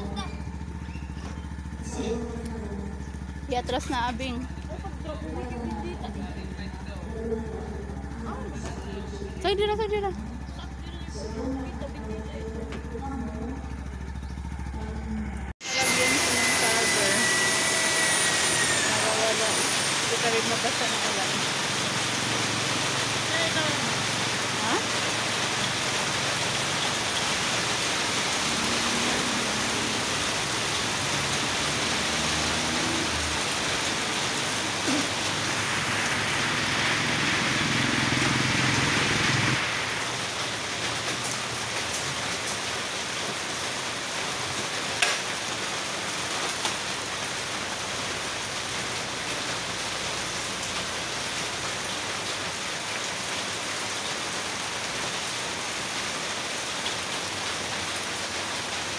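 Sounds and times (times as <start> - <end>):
low rumble: 0.0 - 15.6
rain falling: 0.0 - 58.9.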